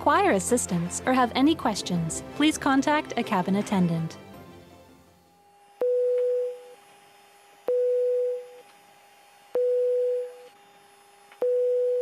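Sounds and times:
faint steady hum: 0:07.6 - 0:08.7.

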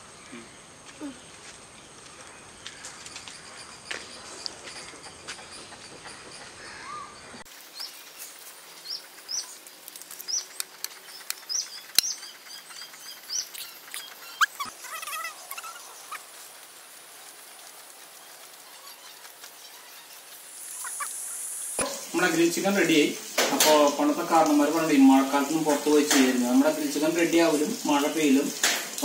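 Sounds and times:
bird chirping: 0:00.0 - 0:16.5, 0:17.7 - 0:22.4
wavering bird call: 0:10.3 - 0:16.4, 0:18.6 - 0:21.4.

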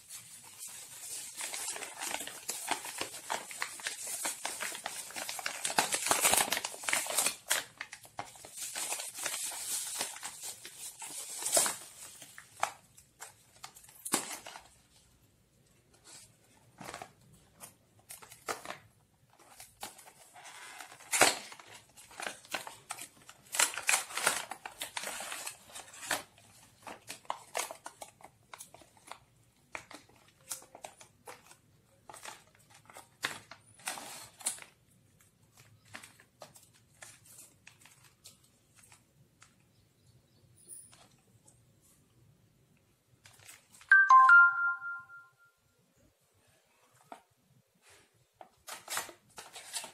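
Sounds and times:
plastic bag rustling: 0:00.0 - 0:14.9
bubble wrap crinkling: 0:00.0 - 0:39.7, 0:47.8 - 0:49.9.

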